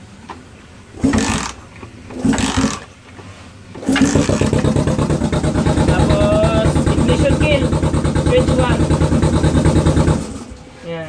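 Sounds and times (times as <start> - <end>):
motorcycle engine cranking: 1.0 - 2.9, 3.8 - 10.6
motorcycle engine idling: 3.8 - 10.5.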